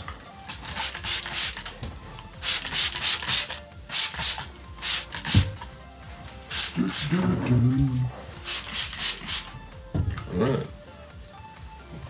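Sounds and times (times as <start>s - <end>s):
spray bottle hissing sprays: 0.5s - 5.7s, 6.4s - 7.3s, 8.3s - 9.7s
spray trigger clicking: 2.4s - 5.7s.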